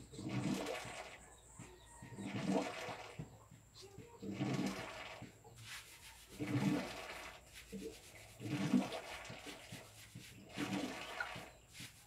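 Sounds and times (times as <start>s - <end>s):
hair scrubbing with lather: 4.5s - 12.0s.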